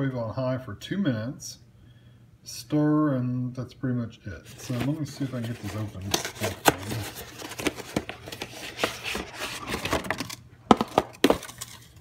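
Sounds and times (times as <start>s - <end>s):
paperboard packaging tearing: 4.5s - 12.0s.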